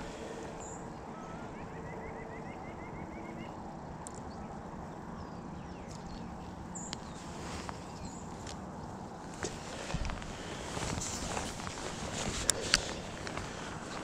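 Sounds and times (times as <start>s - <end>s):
bird chirping: 0.4s - 8.9s
faint small clicks: 4.0s - 4.3s.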